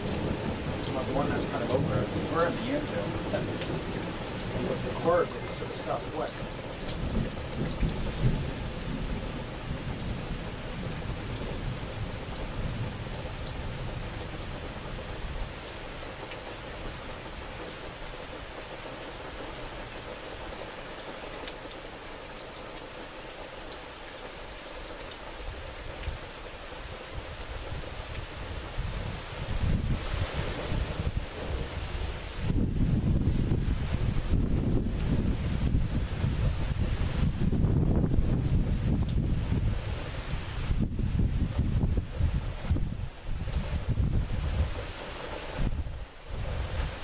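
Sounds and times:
low thunder rumble: 0:00.0 - 0:14.6, 0:28.8 - 0:40.0
steady rain falling: 0:00.0 - 0:47.0.

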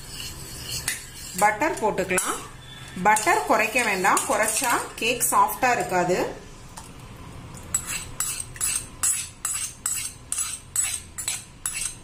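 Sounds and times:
metal spoon scraping metal pans: 0:00.0 - 0:05.1, 0:07.7 - 0:12.0.

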